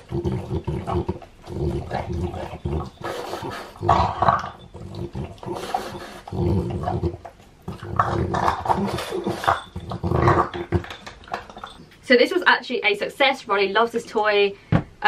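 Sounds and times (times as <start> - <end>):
dog grunting and snuffling: 0.0 - 11.8.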